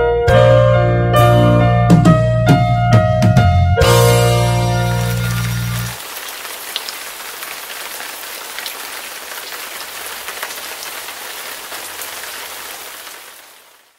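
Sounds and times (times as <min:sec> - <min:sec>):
rain falling: 0:03.9 - 0:13.9
raindrop ticks: 0:05.0 - 0:13.8.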